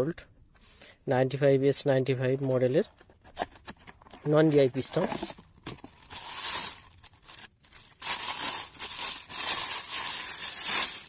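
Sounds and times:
plastic bag crinkling: 4.2s - 11.0s.

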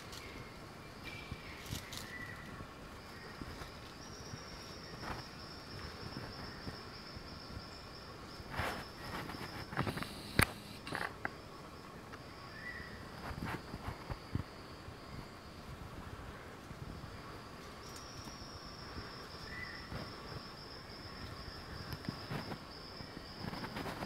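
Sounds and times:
rustles in dry leaf litter: 0.0s - 5.4s
high-pitched insect trill: 0.0s - 16.2s, 16.8s - 24.0s.

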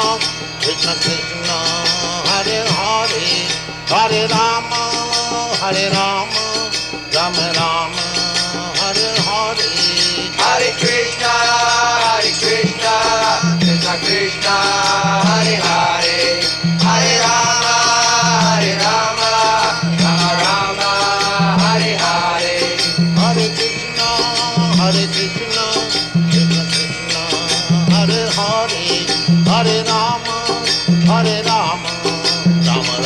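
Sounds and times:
hand cymbals jingling: 0.0s - 33.0s
voices chanting together: 7.2s - 33.0s.

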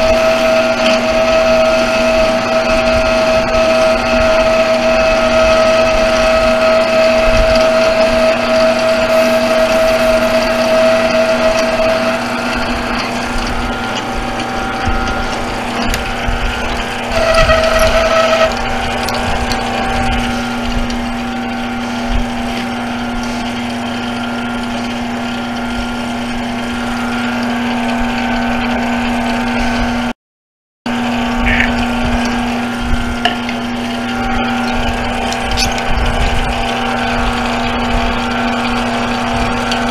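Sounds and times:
high ringing cutting tone: 0.0s - 21.7s, 31.3s - 31.9s
lathe motor and gear whine: 0.0s - 30.1s, 30.9s - 39.9s.

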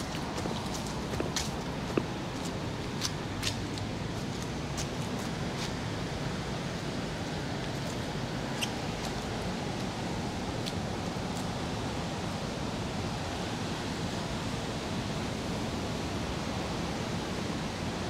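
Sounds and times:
rain on wet street: 0.0s - 6.0s.

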